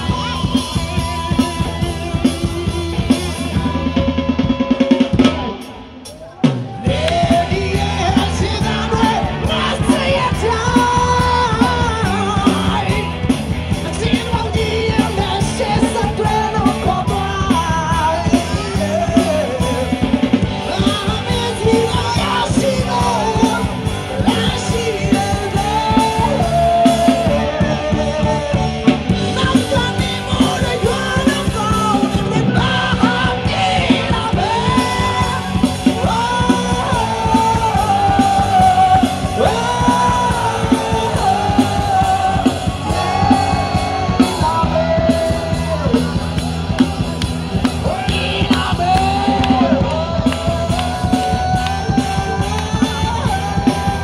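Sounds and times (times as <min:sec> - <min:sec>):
drum kit beat: 0:00.0 - 0:54.0
electric guitars: 0:00.0 - 0:54.0
keyboard: 0:00.0 - 0:54.0
lead singer: 0:00.0 - 0:54.0.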